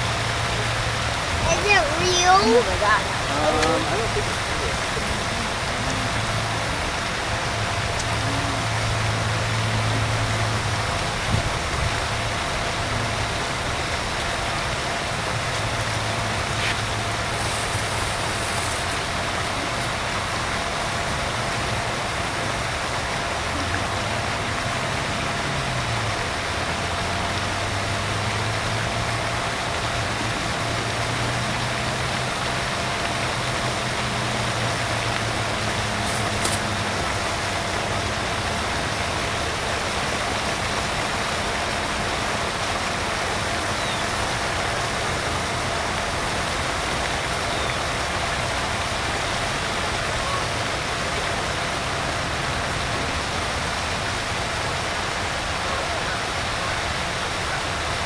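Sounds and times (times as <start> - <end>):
low wavering hum: 2.5 - 27.4.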